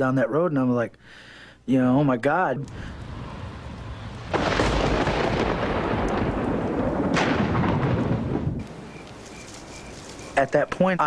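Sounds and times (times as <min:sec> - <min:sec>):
thunder crash rolling: 0:02.7 - 0:08.7.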